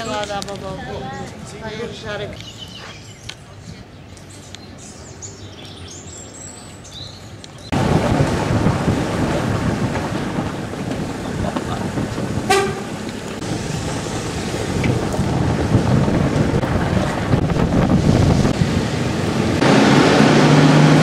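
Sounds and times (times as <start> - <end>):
street traffic rumble: 0.0 - 21.0
vehicle horn toot: 12.5 - 12.9.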